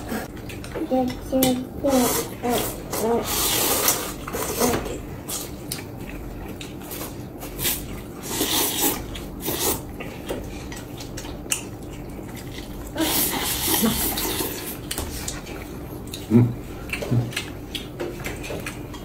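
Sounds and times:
noodles being slurped: 0:01.9 - 0:05.5, 0:06.6 - 0:09.9, 0:12.1 - 0:15.4.

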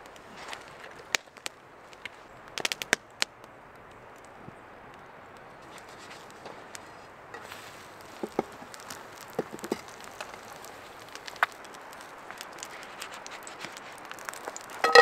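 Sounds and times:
wood fire crackling: 0:00.0 - 0:15.0
eggs hissing in frying pan: 0:05.6 - 0:15.0.

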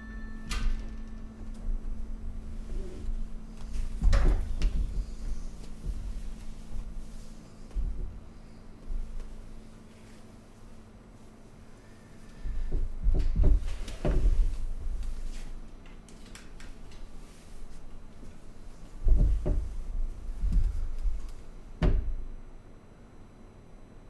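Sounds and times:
microphone handling knocks: 0:19.0 - 0:19.8.

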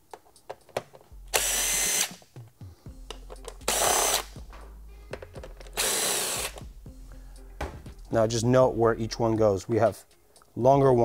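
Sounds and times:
cordless drill spinning: 0:01.3 - 0:02.1, 0:03.6 - 0:04.3, 0:05.7 - 0:06.6.

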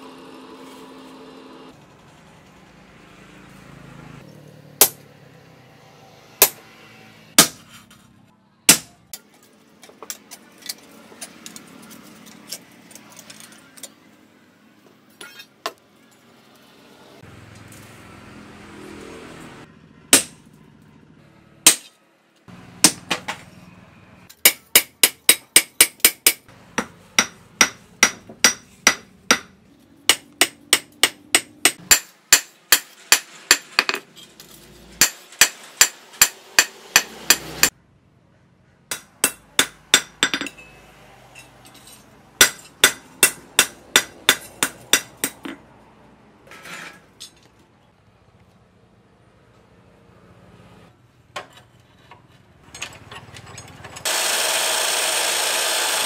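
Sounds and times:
hammer striking steel on anvil: 0:04.8 - 0:05.0, 0:06.4 - 0:06.6, 0:07.4 - 0:07.6, 0:08.7 - 0:09.3, 0:20.1 - 0:20.4, 0:21.6 - 0:22.0, 0:22.8 - 0:23.2, 0:24.3 - 0:34.0, 0:35.0 - 0:37.8, 0:38.9 - 0:40.8, 0:41.4 - 0:45.6.

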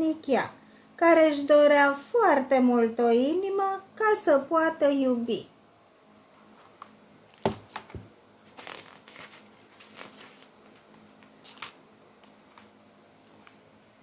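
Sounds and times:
book pages rustling: 0:06.3 - 0:13.6.

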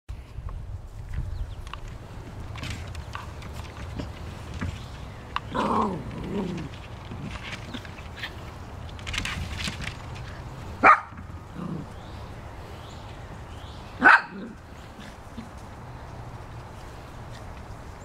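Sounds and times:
small dog barking: 0:10.8 - 0:11.1, 0:14.0 - 0:14.6.

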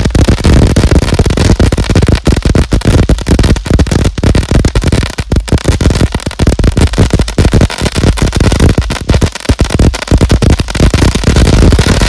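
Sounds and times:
firework crackling pops: 0:00.0 - 0:12.0.

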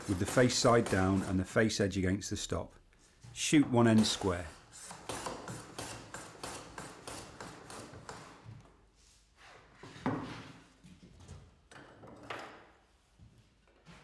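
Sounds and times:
hand plane strokes on wood: 0:00.0 - 0:01.5.

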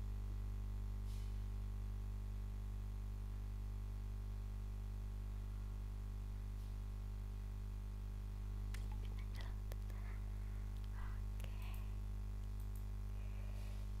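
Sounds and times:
low electrical hum: 0:00.0 - 0:14.0
faint sharp clicks: 0:08.7 - 0:10.0, 0:10.8 - 0:12.9.

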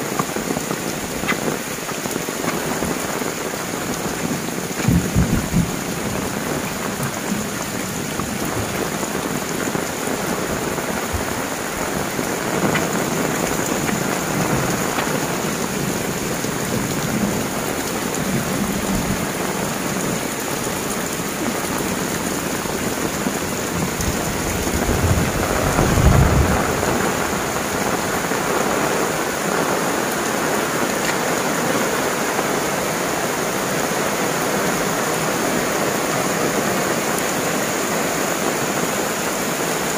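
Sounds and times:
heavy rain pouring: 0:00.0 - 0:39.9
thunder rumble: 0:04.8 - 0:07.4, 0:23.8 - 0:28.3.

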